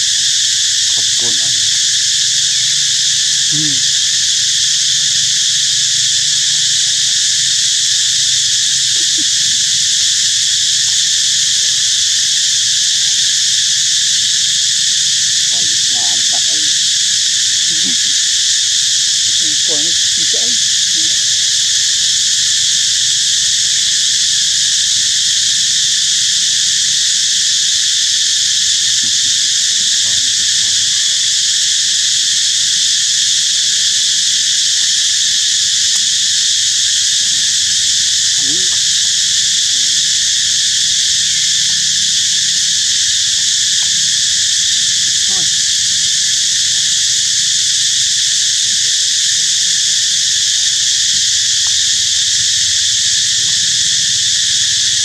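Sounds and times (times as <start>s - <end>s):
insects buzzing: 0.0s - 55.0s.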